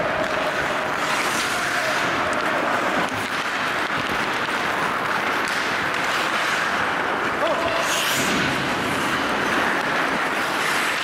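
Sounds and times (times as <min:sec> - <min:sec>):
stick tapping puck: 0:00.0 - 0:07.9
skates scraping across ice: 0:00.0 - 0:11.0
steady rink hiss: 0:00.0 - 0:11.0.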